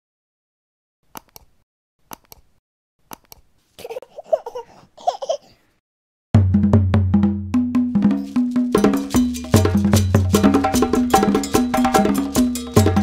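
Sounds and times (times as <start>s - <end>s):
mouse clicks: 1.1s - 1.5s, 2.1s - 2.5s
baby giggling: 3.8s - 5.6s
music: 6.4s - 13.0s.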